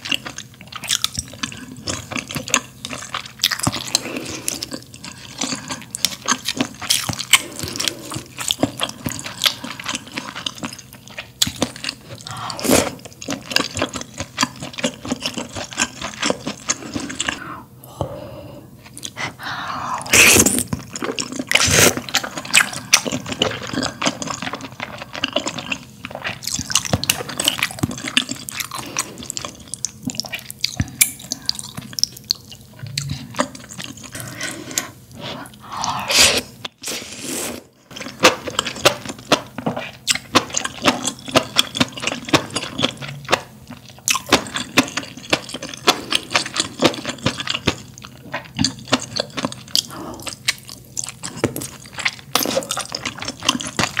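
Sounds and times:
person chewing wetly: 0.0 - 17.4, 18.8 - 19.3, 20.1 - 36.8, 37.9 - 54.0
person slurping noodles: 34.1 - 37.8.

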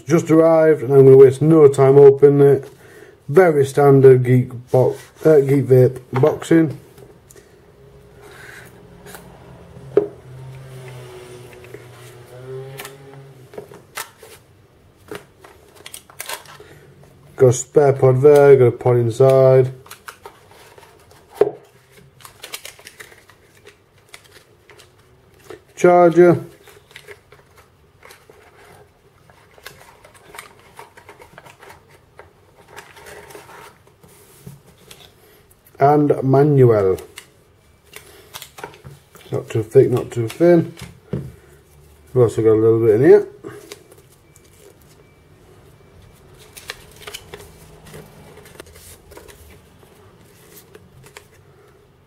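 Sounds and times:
packaging clicks taps and rustles: 15.0 - 16.7, 22.1 - 28.7
packaging rustling and scraping: 19.6 - 35.5, 46.1 - 51.5
paper rustling: 46.3 - 51.5.

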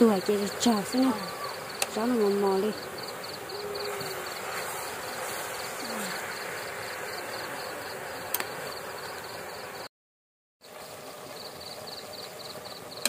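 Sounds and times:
cricket chirping: 0.0 - 9.9, 10.6 - 13.0
steady hiss: 0.0 - 9.9.

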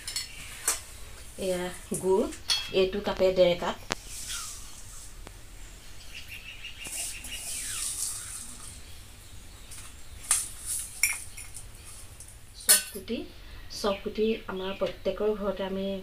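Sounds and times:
bird chirping: 3.9 - 12.7
grainy rustling and scraping: 6.8 - 9.0, 9.6 - 12.3.

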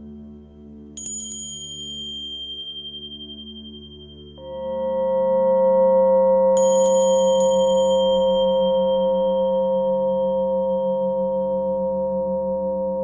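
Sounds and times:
high metal bell tapped: 1.0 - 3.5, 6.6 - 9.2
singing bowl humming: 1.0 - 13.0.

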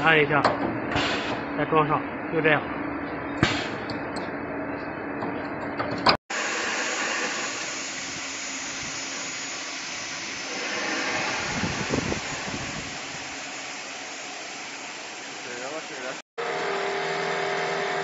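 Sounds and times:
drilling machine spindles hissing: 6.3 - 16.2.

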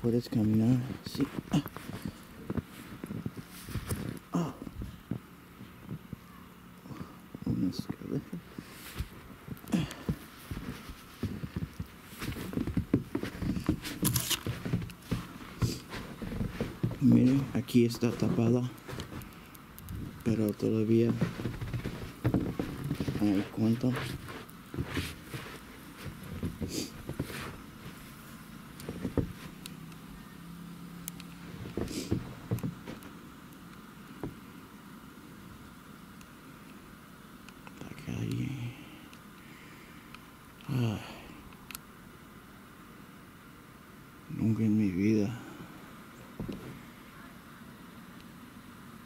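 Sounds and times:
faint steady hum: 0.0 - 49.0
footsteps in deep snow: 0.1 - 4.2, 8.6 - 29.6.

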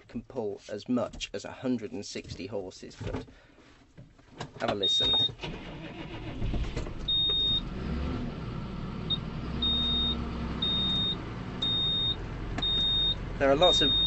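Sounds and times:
tractor diesel engine running: 5.4 - 14.0
high-pitched warning beeper: 9.6 - 14.0.

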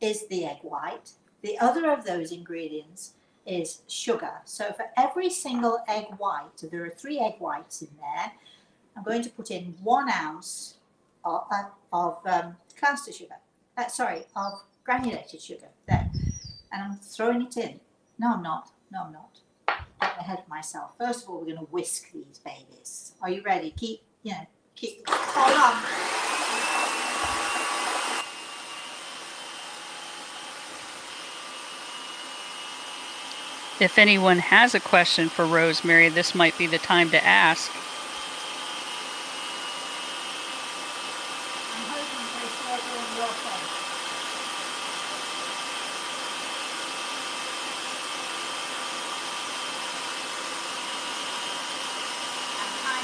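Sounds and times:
stand mixer motor whining: 25.1 - 52.8.

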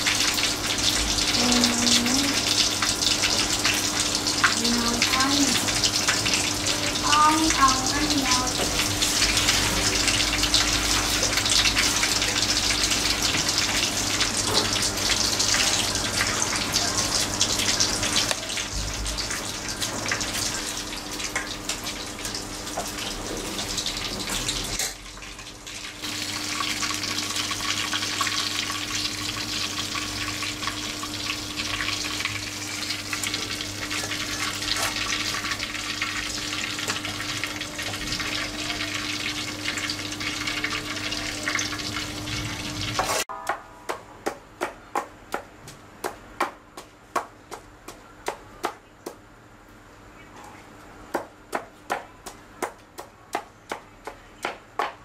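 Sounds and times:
fish sizzling in oil: 0.0 - 43.3.

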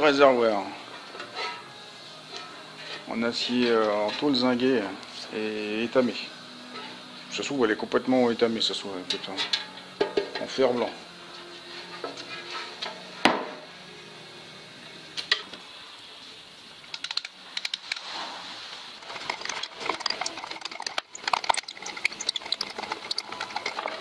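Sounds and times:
metal grating on metal: 1.2 - 4.4, 6.6 - 7.1, 18.9 - 24.0
metal clicks and scrapes: 16.9 - 18.2, 19.0 - 24.0.

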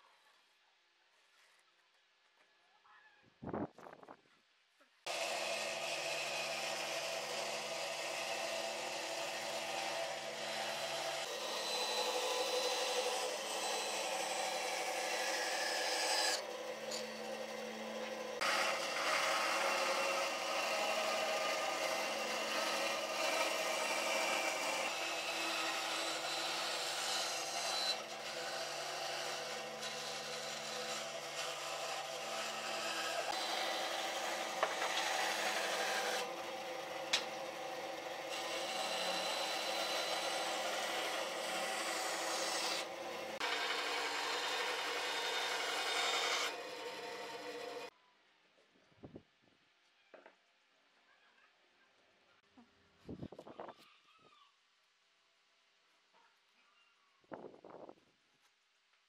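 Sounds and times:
bandsaw cutting wood: 5.1 - 47.9.

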